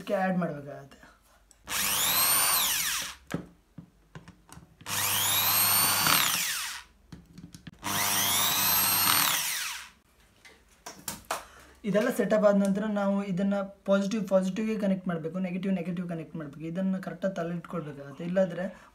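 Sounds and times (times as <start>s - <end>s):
cordless drill motor whining: 1.6s - 3.2s, 4.8s - 6.9s, 7.8s - 10.0s.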